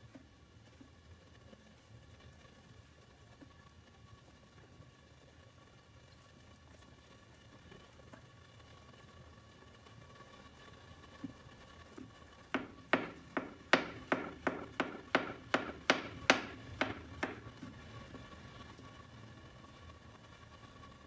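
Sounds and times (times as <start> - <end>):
knife chopping on plastic board: 12.6 - 17.5.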